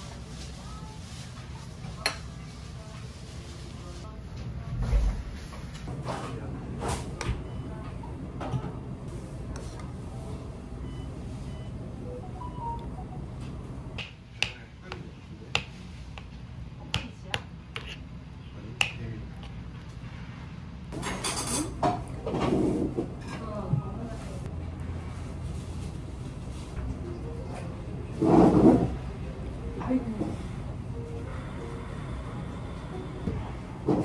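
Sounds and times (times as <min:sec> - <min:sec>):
steady low hum: 0:21.9 - 0:34.0.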